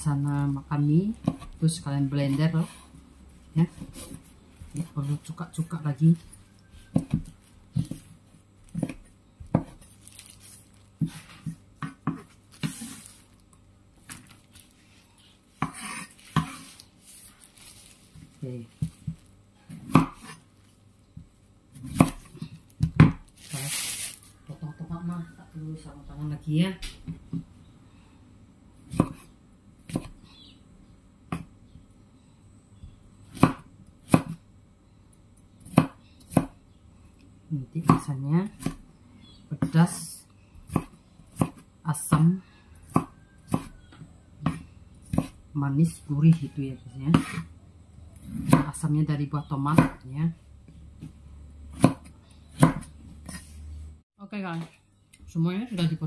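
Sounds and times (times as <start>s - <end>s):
cleaver chopping on wooden board: 15.6s - 16.6s, 19.8s - 20.4s, 44.4s - 45.4s, 51.7s - 53.0s.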